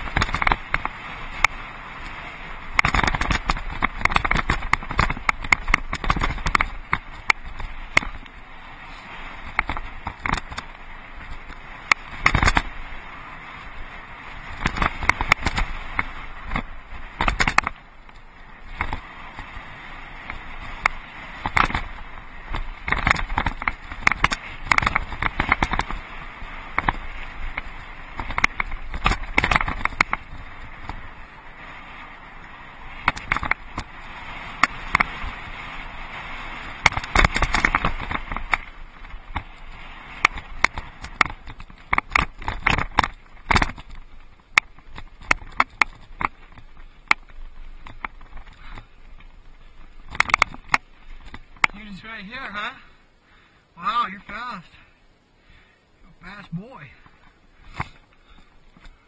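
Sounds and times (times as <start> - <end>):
bike rattling over rocks: 0.0 - 52.9, 56.3 - 59.0
tyres crunching on gravel: 32.1 - 52.9.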